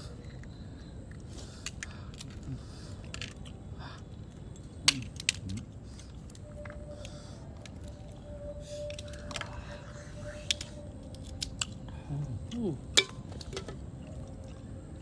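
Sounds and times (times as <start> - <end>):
chewing and crunching: 8.9 - 15.0.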